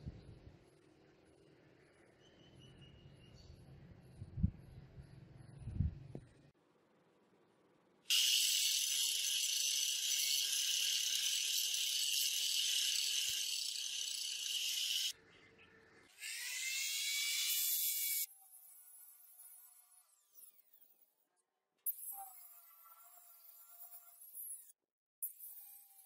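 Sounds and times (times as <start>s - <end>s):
angle grinder grinding steel: 8.1s - 15.1s.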